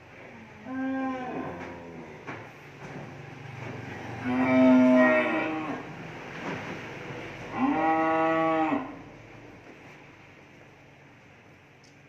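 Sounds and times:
cattle mooing: 0.6 - 2.1, 4.1 - 5.9, 7.5 - 9.0.

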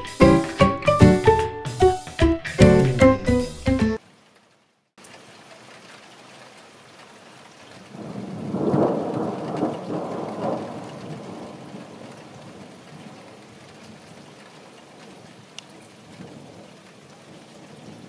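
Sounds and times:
steady rain: 4.0 - 18.0
thunder rolling: 7.9 - 12.6.

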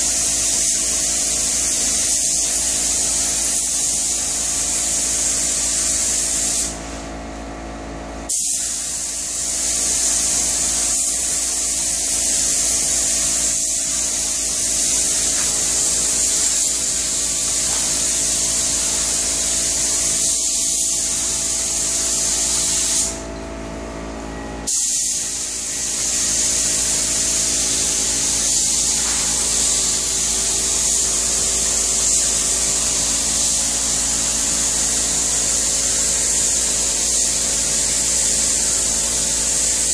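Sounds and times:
spray gun hissing: 0.0 - 6.9, 8.3 - 23.2, 24.6 - 39.9.

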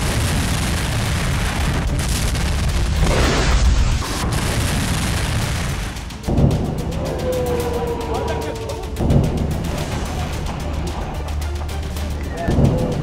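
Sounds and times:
explosions booming: 0.0 - 6.8.

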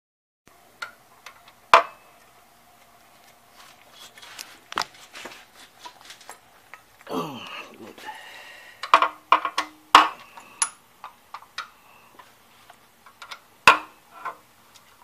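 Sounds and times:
rustling: 2.2 - 6.8
tools and metal parts clinking: 8.9 - 10.8.

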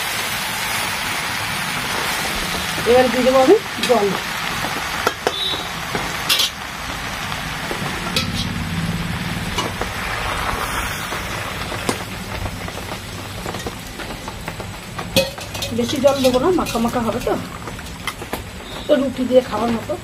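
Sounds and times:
food hissing in pan: 0.0 - 13.6
water poured into pan: 4.3 - 14.4
metal spatula scraping pan: 7.8 - 8.6.

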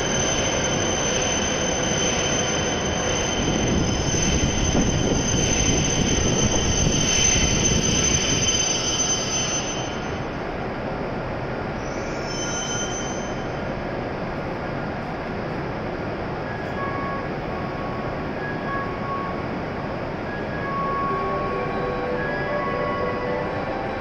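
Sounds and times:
high brake squeal: 0.0 - 10.3, 11.8 - 13.6, 16.5 - 19.4
standing train hum: 0.0 - 24.0
train pulling in and braking: 0.0 - 24.0.

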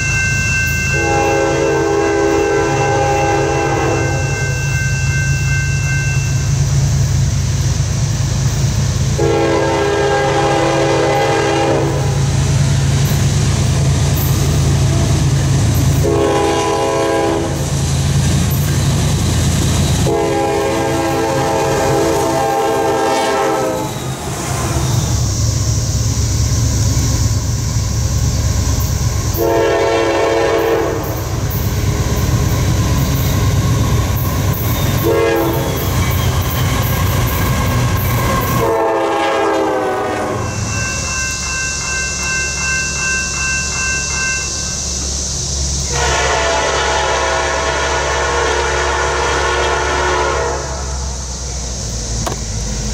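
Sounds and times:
locomotive engine rumbling: 0.0 - 52.9
locomotive air horn blasts: 0.9 - 4.6, 9.1 - 12.5, 16.0 - 17.7, 20.0 - 24.0, 29.3 - 31.4, 34.9 - 35.9, 38.3 - 40.6, 45.9 - 51.2
freight cars rumbling: 6.5 - 38.9, 50.8 - 52.9.

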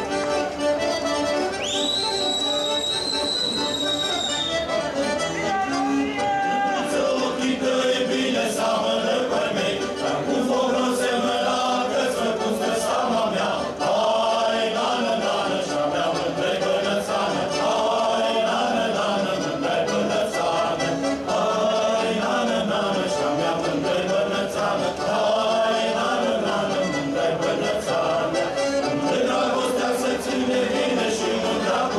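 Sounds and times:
choir singing folk song: 0.0 - 31.9.

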